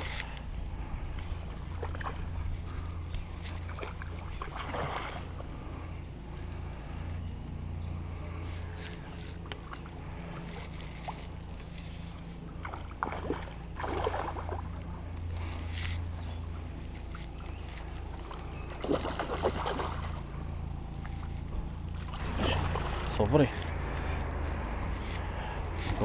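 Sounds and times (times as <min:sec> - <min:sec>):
fish splashing at surface: 0:12.6 - 0:14.6, 0:18.7 - 0:20.2.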